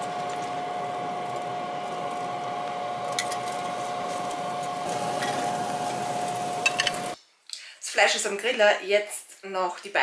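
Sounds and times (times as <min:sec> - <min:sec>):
steaks sizzling on grill: 0:03.8 - 0:07.2.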